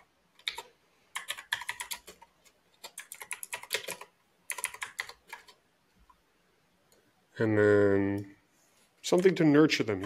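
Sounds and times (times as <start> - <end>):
typing on computer keyboard: 0.0 - 5.6.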